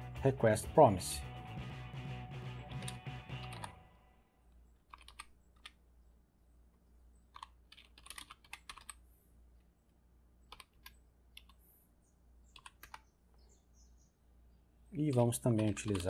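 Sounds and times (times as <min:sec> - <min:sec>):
faint keyboard typing: 0:02.7 - 0:03.8, 0:04.5 - 0:05.8, 0:07.2 - 0:09.7, 0:10.4 - 0:11.7, 0:12.4 - 0:13.1, 0:14.9 - 0:16.0.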